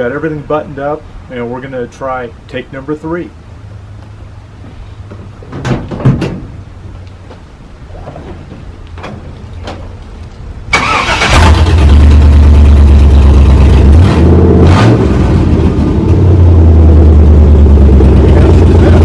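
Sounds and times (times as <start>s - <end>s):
car engine starting and running: 10.6s - 19.0s.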